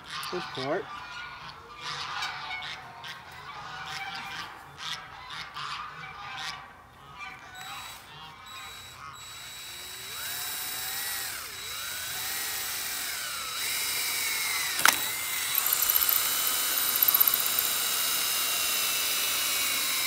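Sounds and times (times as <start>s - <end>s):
cordless drill motor whine: 7.5s - 20.0s
sharp click: 14.6s - 17.7s.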